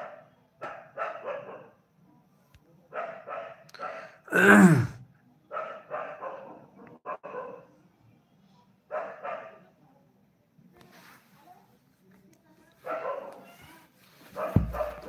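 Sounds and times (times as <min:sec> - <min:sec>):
dog barking: 0:00.0 - 0:01.9, 0:02.9 - 0:04.2, 0:05.5 - 0:07.8, 0:08.9 - 0:09.8, 0:12.8 - 0:13.7, 0:14.3 - 0:15.0.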